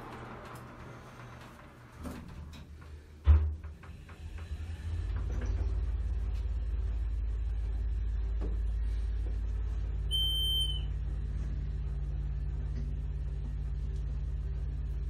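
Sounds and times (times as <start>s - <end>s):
elevator doors sliding shut: 0.0s - 5.8s
elevator running rumble: 0.0s - 15.0s.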